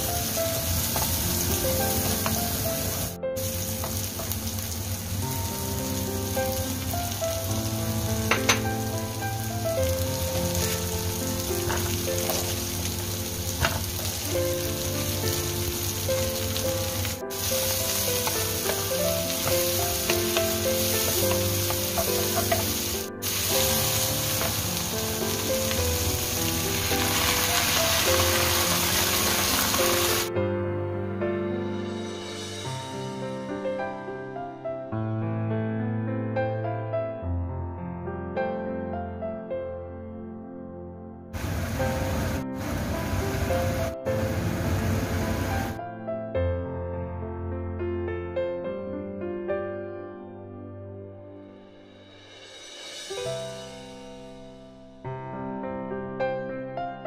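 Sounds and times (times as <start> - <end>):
food sizzling in hot oil: 0.0 - 30.3, 41.4 - 45.8
soft background music: 0.0 - 57.0
spatula scraping a wok: 17.4 - 24.6.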